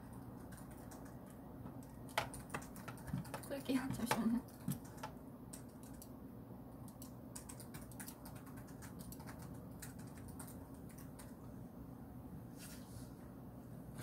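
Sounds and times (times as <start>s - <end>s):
keyboard keys clicking: 0.1s - 6.1s, 6.9s - 11.4s.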